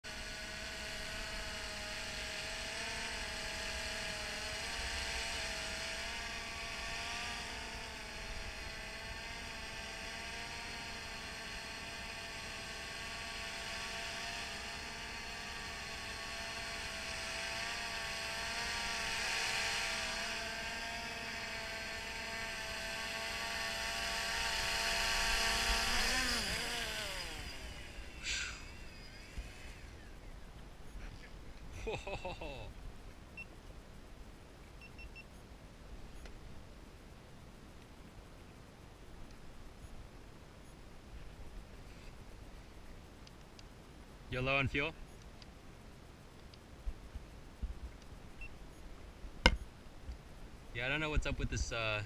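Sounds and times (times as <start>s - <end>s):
drone propellers buzzing: 0.0s - 30.3s.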